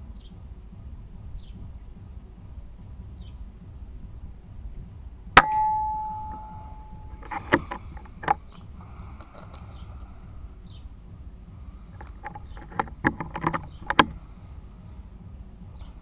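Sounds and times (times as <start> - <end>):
air rifle shot with metallic clang: 5.4 - 7.8.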